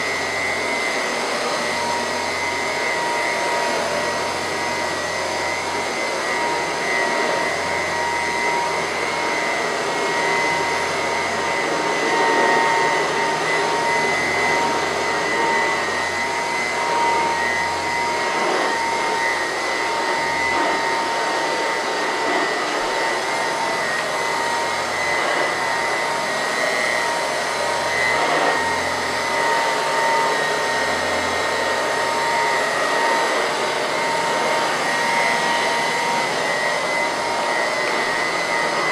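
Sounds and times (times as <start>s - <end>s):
vacuum cleaner running: 0.0s - 38.9s.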